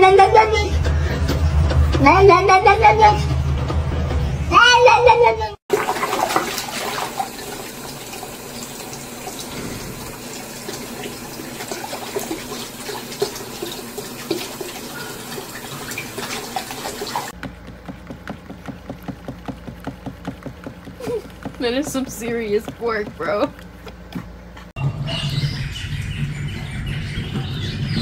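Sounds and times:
small water splashes: 5.7s - 9.4s
tap water running into sink: 5.7s - 20.6s
soft repeated tapping: 17.3s - 24.3s.

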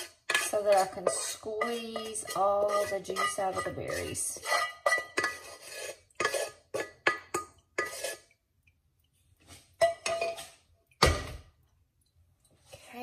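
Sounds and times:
kitchenware clinking: 0.0s - 8.2s, 9.8s - 11.4s.

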